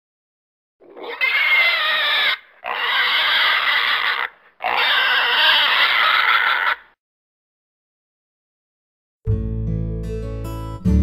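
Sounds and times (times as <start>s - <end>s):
pig squealing: 0.8s - 7.0s.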